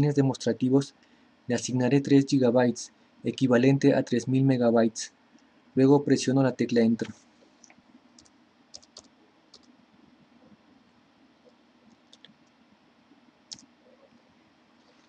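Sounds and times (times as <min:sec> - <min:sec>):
computer keyboard keystrokes: 0:07.6 - 0:09.7, 0:11.9 - 0:12.4.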